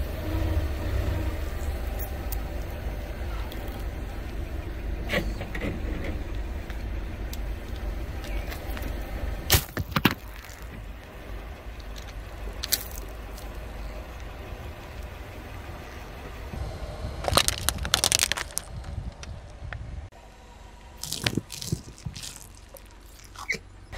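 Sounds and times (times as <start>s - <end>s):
car engine rumbling: 0.0s - 23.9s
balls popping under tyre: 7.7s - 11.2s, 11.8s - 13.6s, 17.2s - 19.4s, 21.0s - 23.6s
plastic cups cracking: 17.2s - 18.7s, 21.0s - 23.6s.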